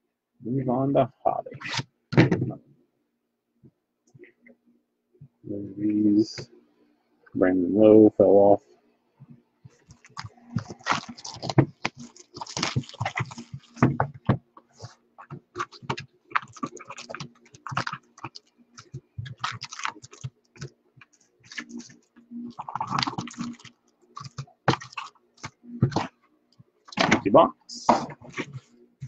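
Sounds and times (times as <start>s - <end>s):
card wrappers crinkling: 9.8s - 14.0s, 14.8s - 26.1s.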